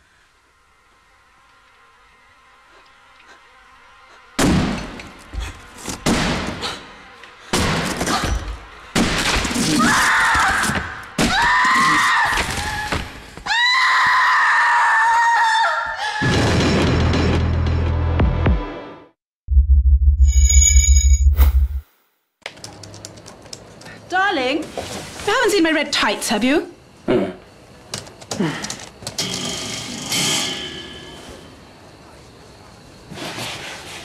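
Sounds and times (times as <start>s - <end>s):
woman screaming: 9.8s - 16.3s.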